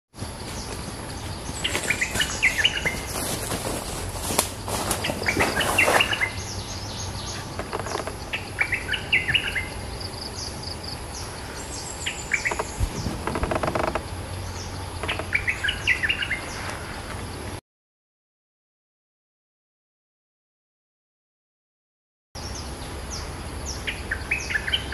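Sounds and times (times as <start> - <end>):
bulbul singing: 0.2 - 17.5, 22.4 - 24.9
high bird chirps: 0.6 - 3.3, 5.0 - 16.8.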